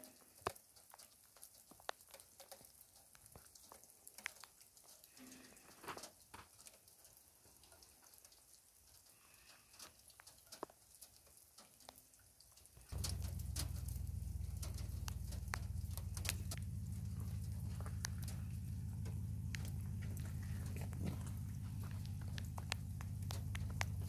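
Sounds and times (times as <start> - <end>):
faint ticks and taps: 0.0 - 24.0
steady low hum: 12.9 - 24.0.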